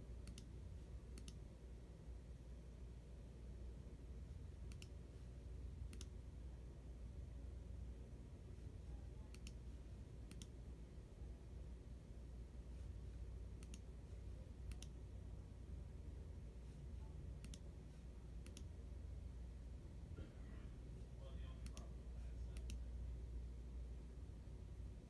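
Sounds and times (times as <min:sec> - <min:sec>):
low room hum: 0:00.0 - 0:25.0
computer mouse clicks: 0:00.2 - 0:00.5, 0:01.1 - 0:01.4, 0:04.6 - 0:05.0, 0:05.8 - 0:06.2, 0:09.2 - 0:09.6, 0:10.3 - 0:10.6, 0:13.5 - 0:13.9, 0:14.6 - 0:15.0, 0:17.4 - 0:17.7, 0:18.4 - 0:18.7, 0:22.5 - 0:22.8.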